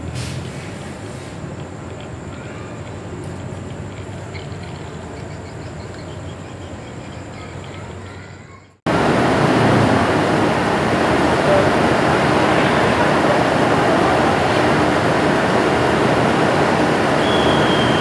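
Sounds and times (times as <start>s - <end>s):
diesel train rumble: 0.0s - 4.3s, 8.9s - 18.0s.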